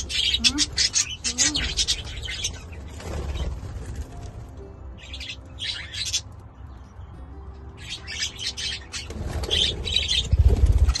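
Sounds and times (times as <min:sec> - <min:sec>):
wings fluttering: 0:00.0 - 0:04.6, 0:08.9 - 0:11.0.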